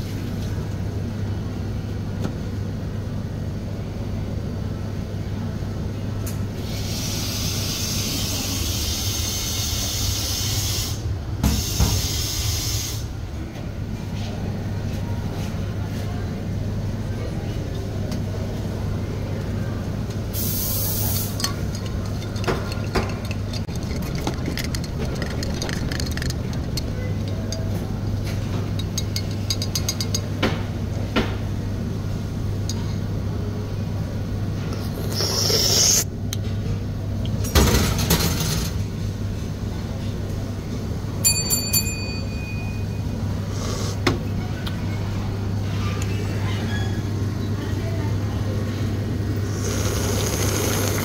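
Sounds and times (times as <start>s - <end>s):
steady low hum: 13.0s - 37.6s
spoon and ice clinking in glass: 21.3s - 27.6s, 28.7s - 30.3s
glass ringing: 41.2s - 43.2s.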